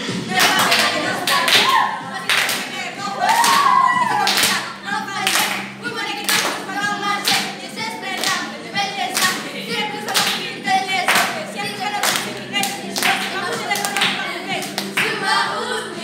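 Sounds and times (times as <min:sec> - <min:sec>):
girls singing a pop song: 0:00.0 - 0:16.0
hands clapping: 0:00.4 - 0:07.6, 0:08.2 - 0:08.4, 0:09.1 - 0:09.4, 0:10.1 - 0:10.5, 0:11.1 - 0:11.4, 0:12.0 - 0:15.2.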